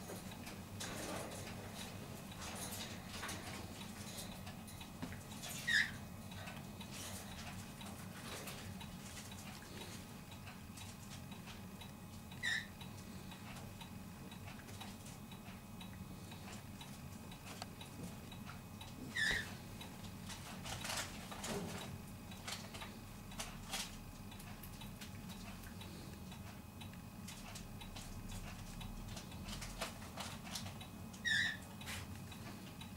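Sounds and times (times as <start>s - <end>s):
low steady hum: 0.0s - 32.9s
animal squeaks: 5.6s - 6.0s, 12.4s - 12.7s, 19.1s - 19.6s, 31.2s - 31.7s.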